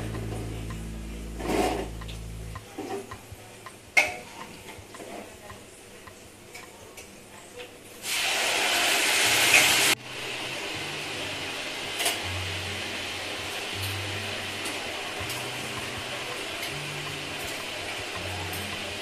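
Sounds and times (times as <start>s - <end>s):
loud steady hiss: 0.0s - 2.7s, 8.0s - 19.0s.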